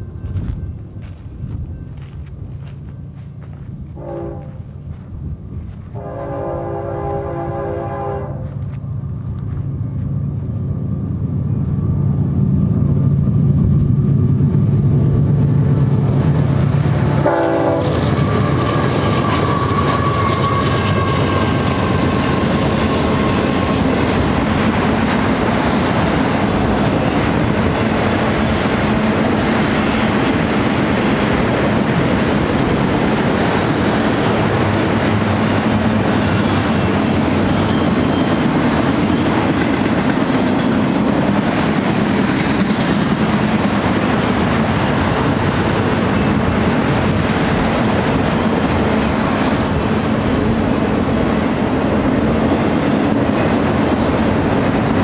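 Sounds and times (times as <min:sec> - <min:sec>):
train wheel and rail noise: 0:00.0 - 0:55.0
locomotive air horn: 0:04.0 - 0:04.7, 0:06.0 - 0:08.6, 0:17.2 - 0:22.4.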